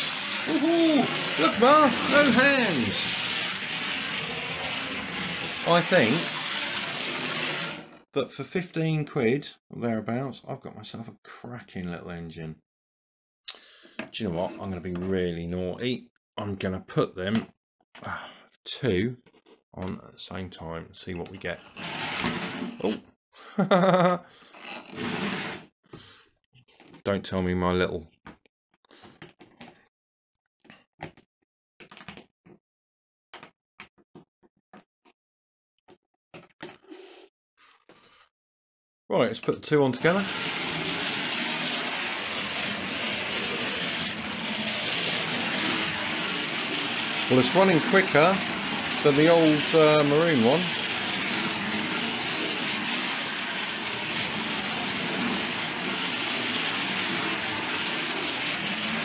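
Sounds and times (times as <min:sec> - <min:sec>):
wheels on track: 0:00.0 - 0:07.9, 0:39.9 - 0:59.0
model train motors whirring: 0:00.0 - 0:08.0, 0:40.0 - 0:59.0.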